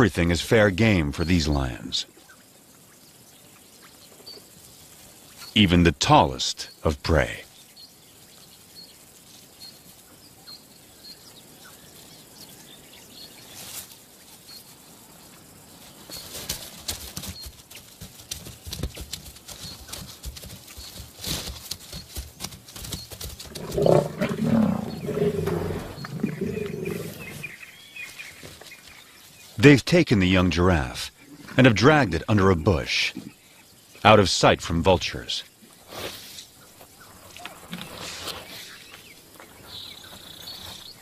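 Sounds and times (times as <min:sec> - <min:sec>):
lions growling: 0:23.4 - 0:27.6.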